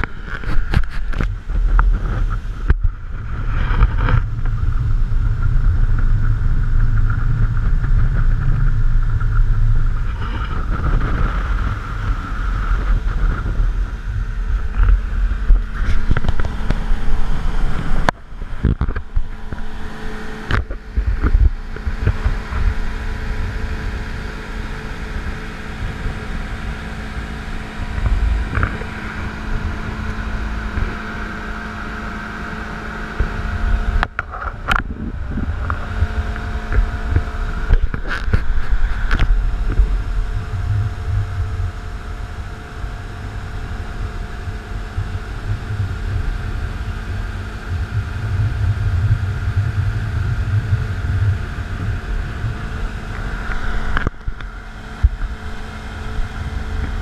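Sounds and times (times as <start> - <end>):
outboard motor droning: 0.0 - 57.0
wind buffeting microphone: 0.0 - 57.0.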